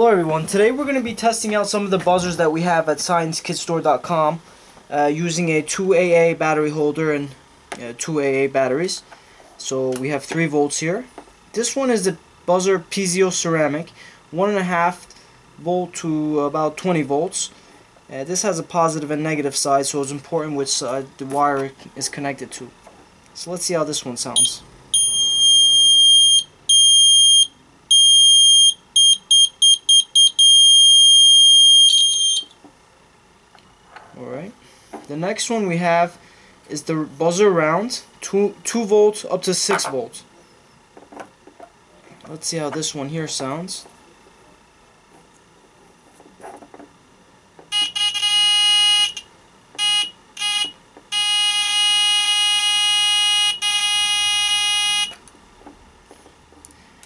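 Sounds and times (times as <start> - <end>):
high-pitched buzzer tones: 24.4 - 32.5, 47.7 - 55.2.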